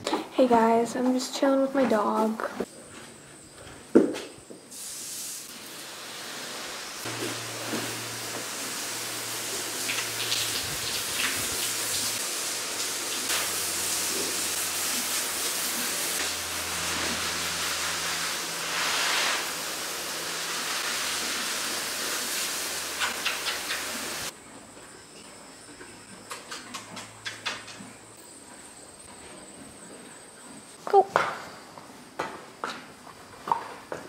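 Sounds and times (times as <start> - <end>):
hose water spraying: 4.7 - 24.3.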